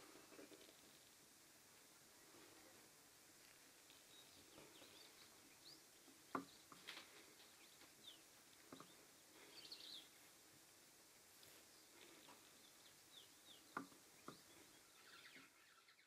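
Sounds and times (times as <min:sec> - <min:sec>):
faint bird chirps: 0:03.9 - 0:10.4, 0:11.0 - 0:16.0.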